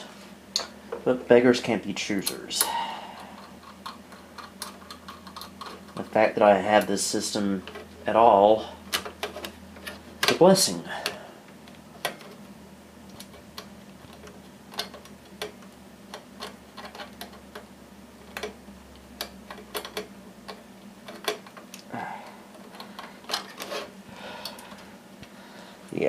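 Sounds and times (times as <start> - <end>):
metal parts clicking and tapping: 2.2 - 7.0, 13.1 - 18.6, 19.2 - 21.9, 22.5 - 24.8.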